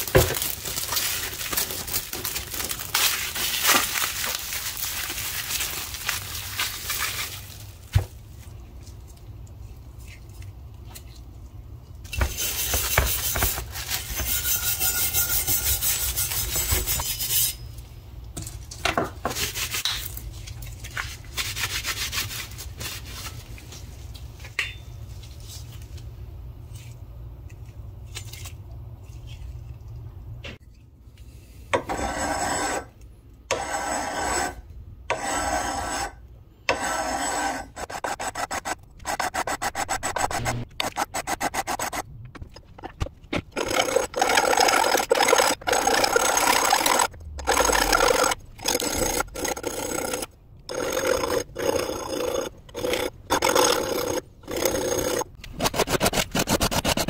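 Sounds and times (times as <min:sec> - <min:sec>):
metal scrubbing and scraping: 0:12.2 - 0:17.8
hand file rasping on steel: 0:14.2 - 0:17.6.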